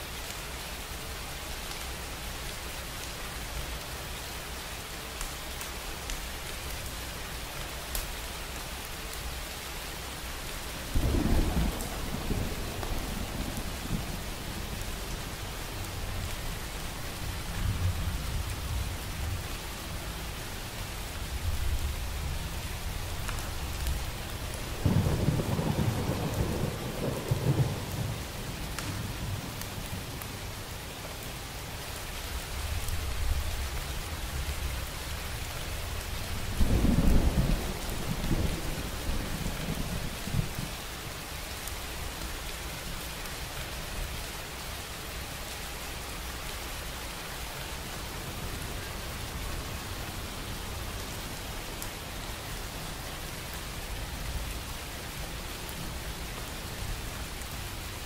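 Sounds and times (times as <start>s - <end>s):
steady rain: 0.0s - 58.0s
thunder rumbling: 11.0s - 15.0s, 24.6s - 29.6s, 36.3s - 40.7s.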